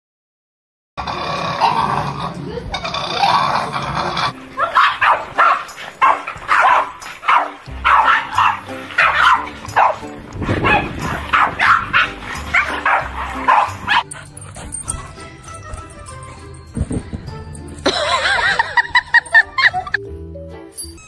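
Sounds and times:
background music: 1.0 - 21.0
small dogs barking: 4.3 - 15.5.

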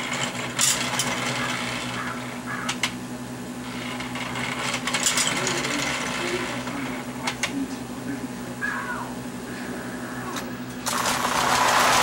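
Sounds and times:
electric motor humming: 0.0 - 12.0.

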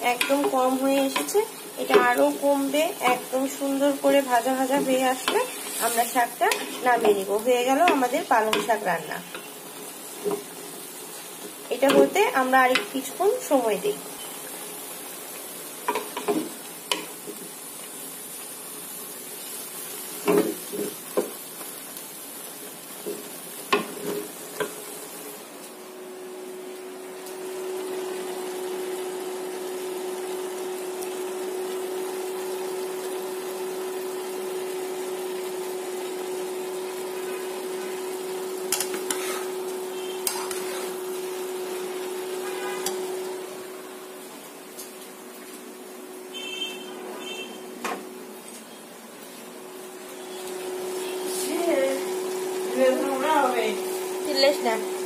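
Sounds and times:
spinach frying in pan: 0.0 - 55.0
vegetables sizzling in pot: 0.0 - 55.0
wooden spoon scraping pan: 4.7 - 7.2, 38.7 - 39.6, 40.2 - 41.0.

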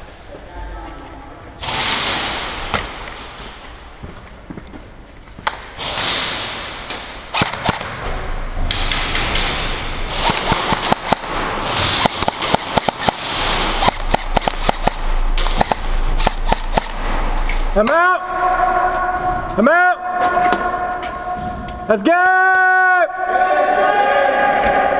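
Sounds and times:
airsoft guns firing: 5.8 - 8.0, 8.9 - 18.0.

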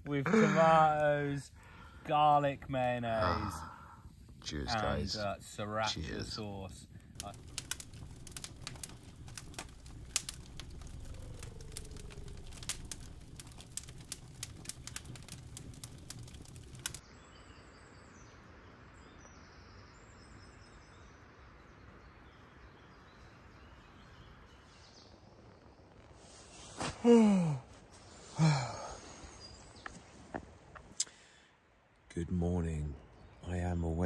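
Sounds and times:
campfire crackling and popping: 0.0 - 17.2, 21.6 - 34.0
low rumble of flames: 0.0 - 34.0
faint bird calls: 7.2 - 13.7.

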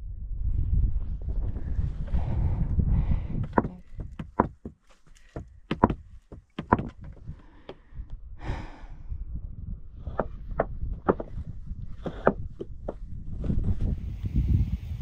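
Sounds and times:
boots and poles tapping on rocks: 3.4 - 7.2, 10.1 - 13.6.

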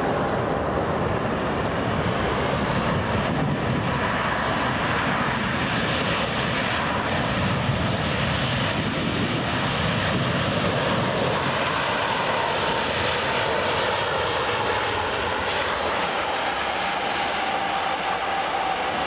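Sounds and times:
jet airliner rolling on runway: 0.0 - 19.0.

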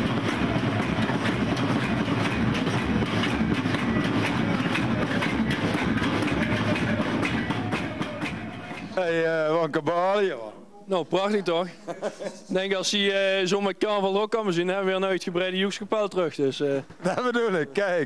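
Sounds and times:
improvised drumming on pots and buckets: 0.0 - 9.3.

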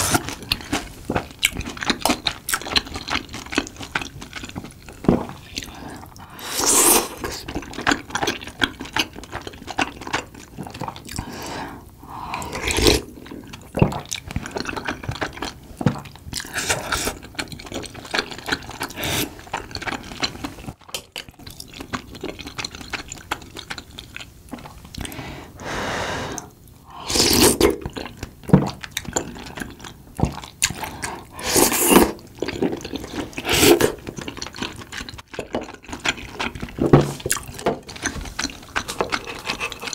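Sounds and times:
chewing and mouth clicks: 0.2 - 6.2, 13.1 - 25.2, 27.7 - 39.9.

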